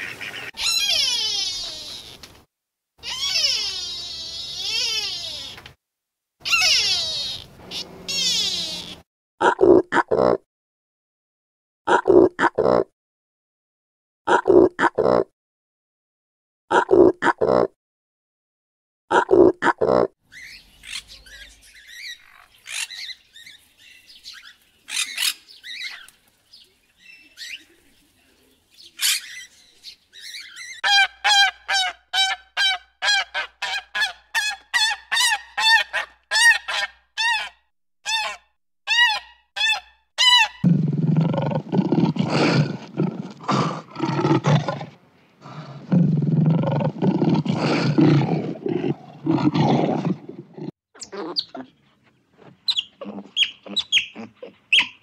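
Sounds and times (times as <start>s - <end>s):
budgerigars chirping: 20.3s - 26.1s, 52.7s - 55.0s
lions growling: 40.6s - 50.8s, 53.0s - 54.8s.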